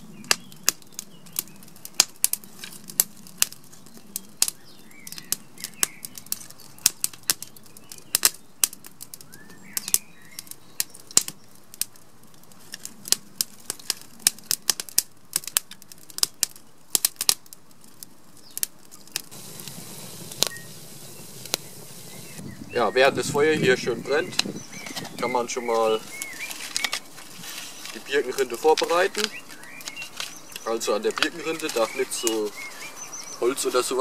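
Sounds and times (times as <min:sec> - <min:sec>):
soft steady hiss: 0:00.0 - 0:34.0
wood fire crackling and popping: 0:00.0 - 0:34.0
faint bird chirps: 0:20.1 - 0:34.0.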